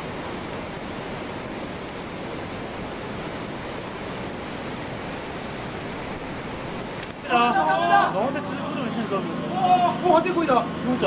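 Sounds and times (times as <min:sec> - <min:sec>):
rush of churning water: 0:00.0 - 0:11.0.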